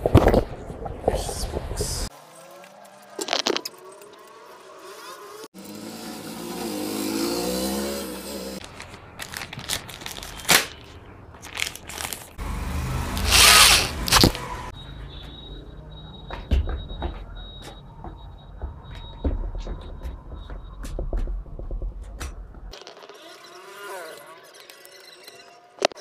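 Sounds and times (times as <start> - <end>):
small power tool whirring: 13.1 - 14.6.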